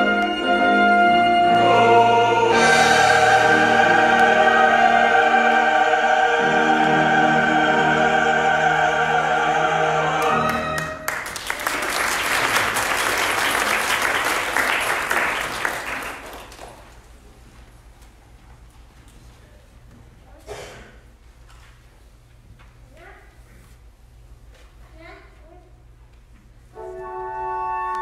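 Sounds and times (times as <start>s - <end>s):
choir and ensemble chord: 0.0s - 11.1s, 26.8s - 28.0s
congregation applauding: 10.1s - 17.0s.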